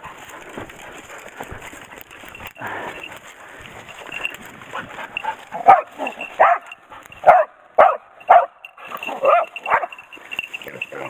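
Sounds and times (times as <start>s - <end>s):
dog barking: 5.6s - 10.0s.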